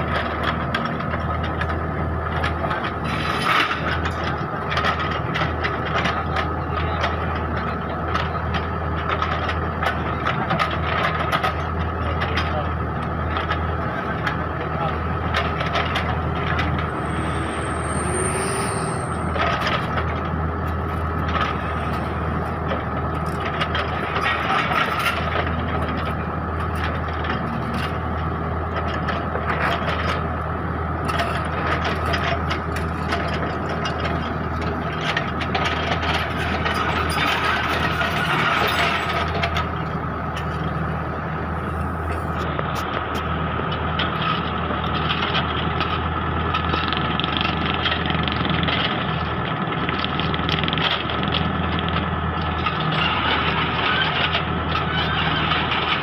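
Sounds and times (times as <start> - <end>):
diesel engine running: 0.0 - 56.0
high whine: 15.8 - 20.3.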